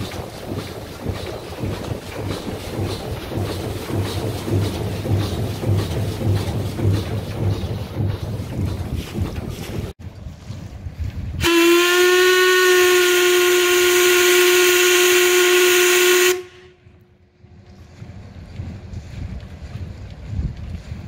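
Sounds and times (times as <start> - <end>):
steam whistle blast: 11.4 - 16.8.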